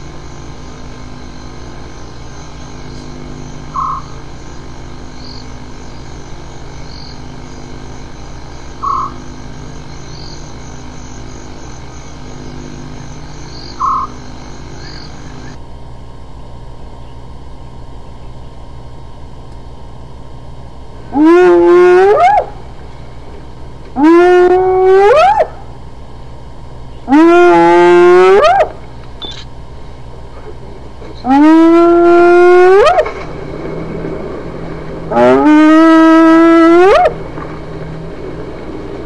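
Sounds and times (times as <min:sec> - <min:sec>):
film soundtrack hiss and hum: 0:00.0 - 0:21.1, 0:28.6 - 0:39.0
animal call: 0:02.5 - 0:04.5, 0:08.7 - 0:09.3, 0:13.1 - 0:15.6, 0:24.0 - 0:25.6, 0:27.0 - 0:29.4, 0:31.1 - 0:33.4, 0:35.0 - 0:37.2.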